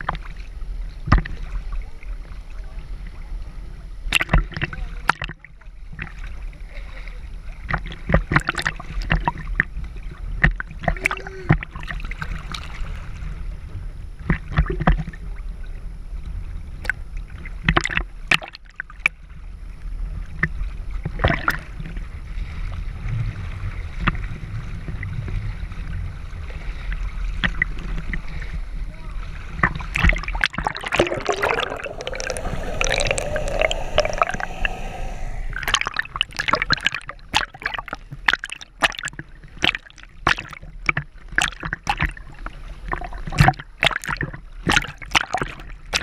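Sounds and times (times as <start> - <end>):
water sloshing and gurgling: 29.9 - 42.2.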